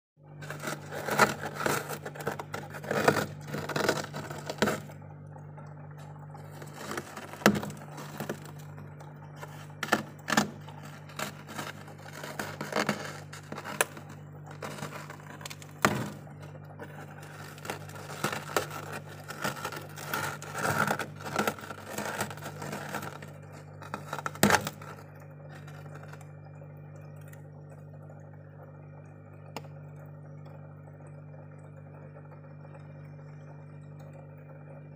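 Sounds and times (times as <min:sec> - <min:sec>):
steady low hum: 0:00.2 - 0:34.9
freezer frost crunching and scraping: 0:00.4 - 0:05.0, 0:06.0 - 0:26.4.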